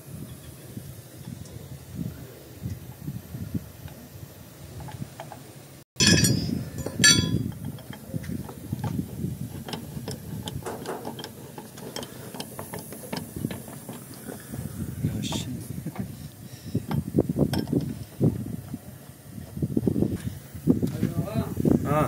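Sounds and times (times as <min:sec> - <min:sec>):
metal wrench clinks: 0:06.0 - 0:08.0.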